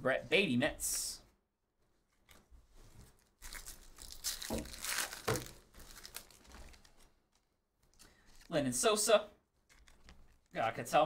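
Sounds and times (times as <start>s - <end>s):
foil wrapper tearing and crinkling: 3.4s - 7.4s.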